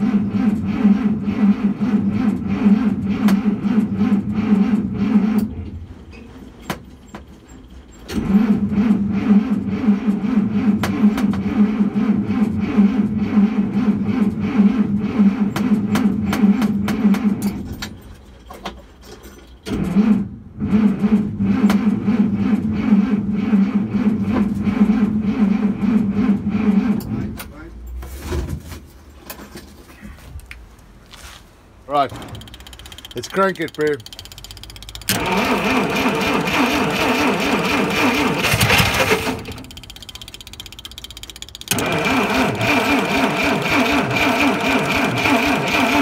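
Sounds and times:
starter motor cranking engine: 31.9 - 46.0.

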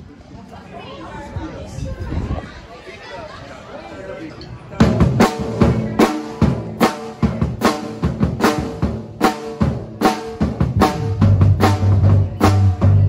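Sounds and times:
acoustic drum kit playing: 4.8 - 13.0.

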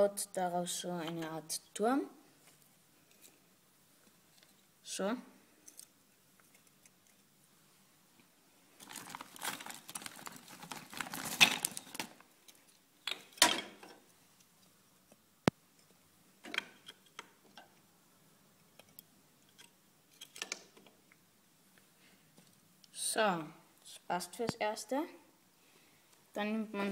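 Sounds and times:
wooden sticks clattering and scraping: 8.8 - 14.0.

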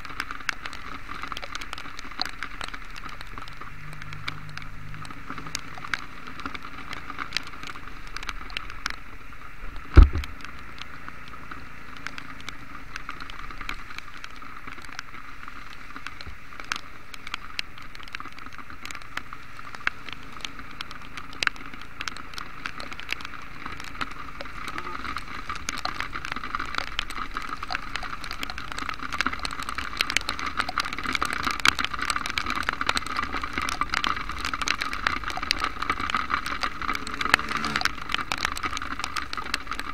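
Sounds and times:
rain hissing on wet road: 0.0 - 39.9
raindrops ticking on camera: 0.0 - 39.9.

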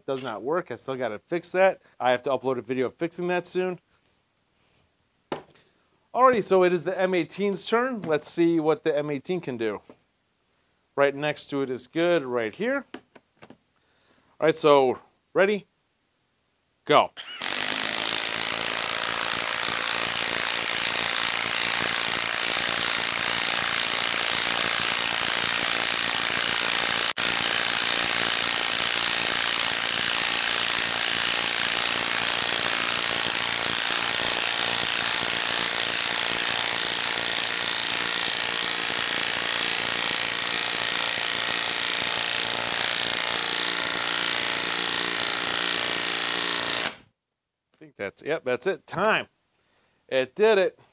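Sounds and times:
impact wrench hammering: 5.3 - 5.6, 17.2 - 47.0.

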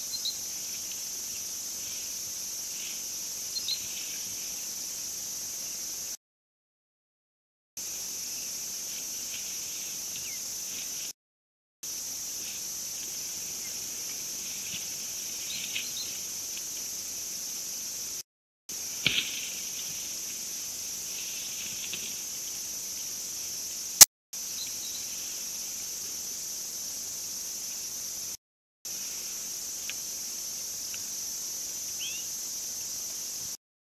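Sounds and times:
high insect chorus: 0.0 - 6.2, 7.8 - 11.2, 11.8 - 33.6.

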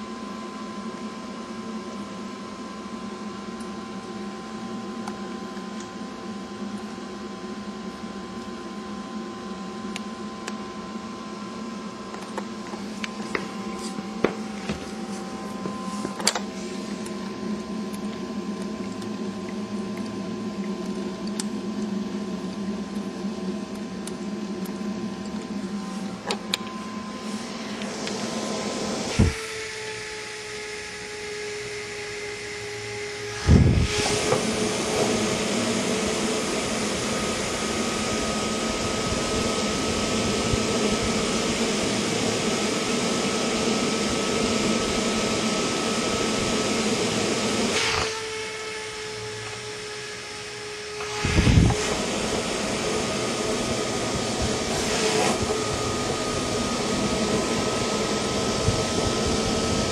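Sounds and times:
fan humming: 3.3 - 59.9.

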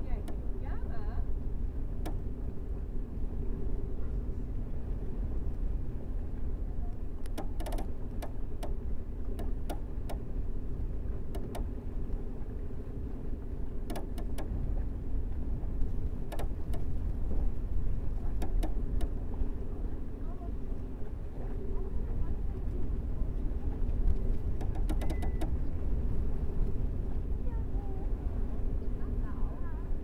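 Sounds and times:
low rumble and hum of ship: 0.0 - 30.0
sharp clicks from the rig: 7.2 - 8.8, 11.4 - 11.7, 13.9 - 14.5, 24.6 - 25.6.

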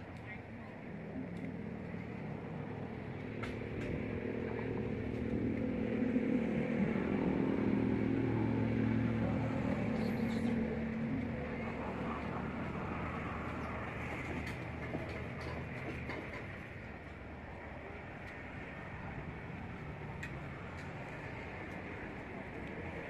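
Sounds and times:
motor engine running: 1.0 - 16.4.

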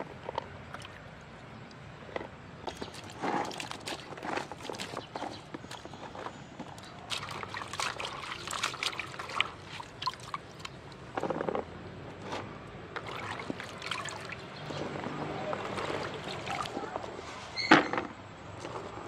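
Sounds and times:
hands swishing vegetables in water: 2.7 - 11.3, 13.0 - 17.6.

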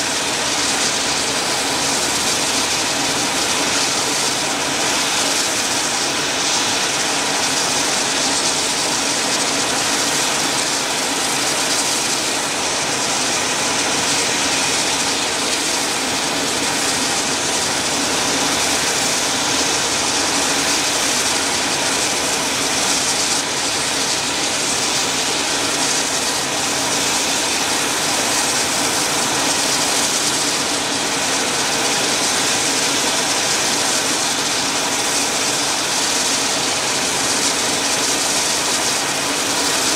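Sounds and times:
helicopter turbine noise: 0.0 - 39.9.

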